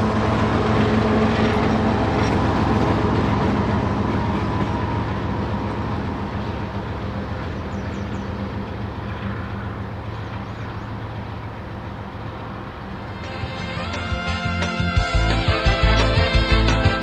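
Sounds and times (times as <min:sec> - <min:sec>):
diesel locomotive drone: 0:00.0 - 0:17.0
train cars rolling: 0:00.0 - 0:17.0
music: 0:13.1 - 0:17.0.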